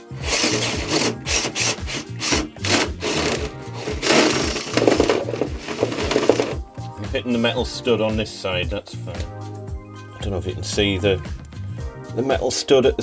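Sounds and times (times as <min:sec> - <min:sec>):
drill with hole saw grinding: 0:00.0 - 0:06.6.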